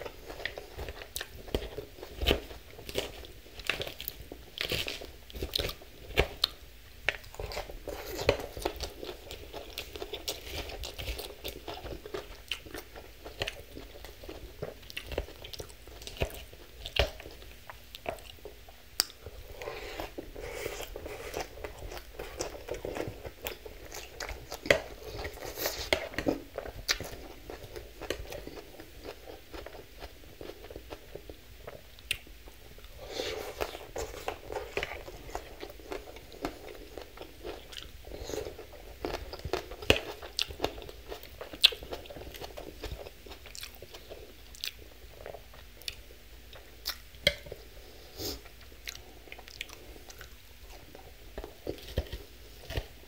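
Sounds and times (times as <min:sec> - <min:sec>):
chewing crunchy salad: 0:00.0 - 0:53.0.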